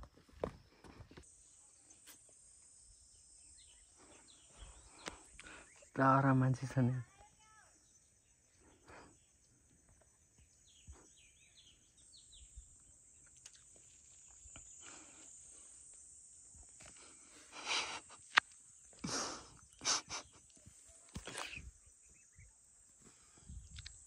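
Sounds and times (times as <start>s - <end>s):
high-pitched insect drone: 1.2s - 22.6s
short bird chirps: 21.2s - 22.5s.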